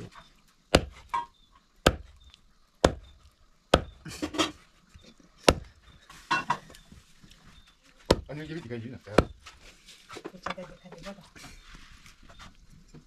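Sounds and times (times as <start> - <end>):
machete chopping on wooden block: 0.7 - 2.2, 2.8 - 4.5, 5.4 - 5.8, 8.1 - 8.3, 9.1 - 9.5.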